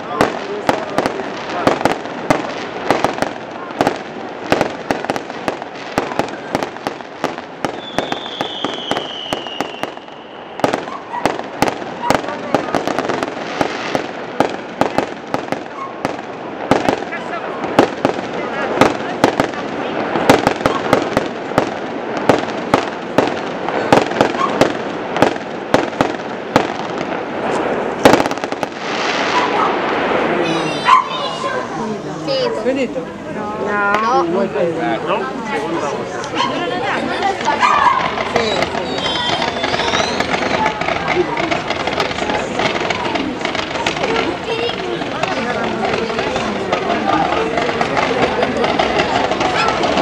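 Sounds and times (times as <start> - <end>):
firework crackling: 0.0 - 50.0
firework shells bursting: 0.2 - 30.2
high falling whistle: 38.4 - 40.4.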